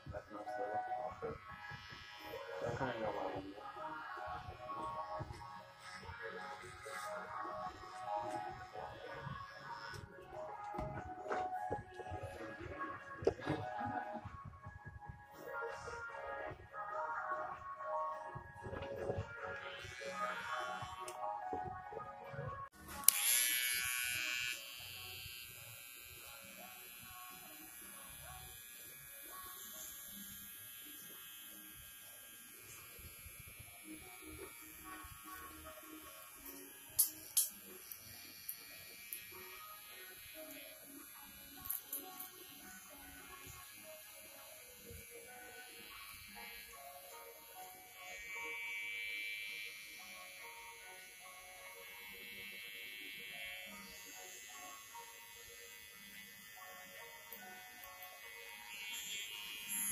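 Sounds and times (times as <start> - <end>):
electric hair clippers buzzing: 1.4 - 11.1, 19.4 - 21.7, 22.8 - 59.9.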